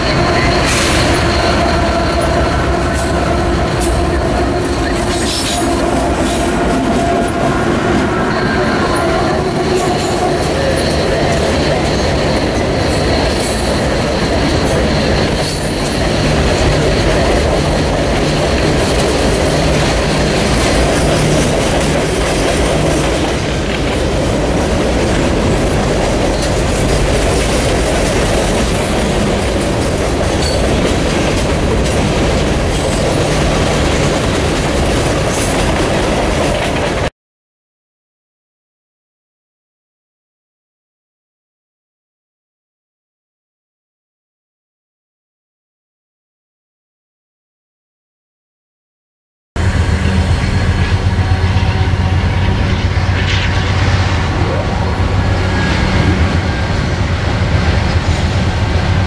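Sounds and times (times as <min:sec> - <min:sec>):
high wheel squeal: 0:00.0 - 0:07.5, 0:08.2 - 0:17.5
diesel locomotives droning: 0:00.0 - 0:37.1, 0:49.6 - 0:59.0
wheels rumbling on rail: 0:00.0 - 0:37.1, 0:49.6 - 0:59.0.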